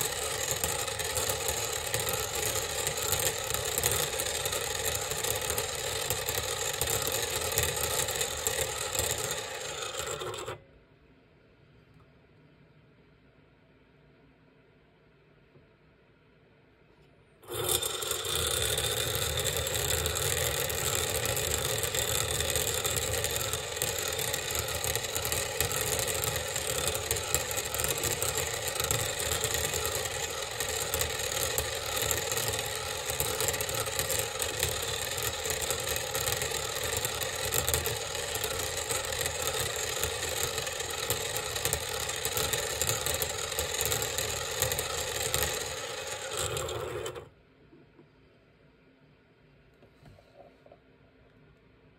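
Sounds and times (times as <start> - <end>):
motor whirring: 0.0 - 10.6, 17.4 - 47.3.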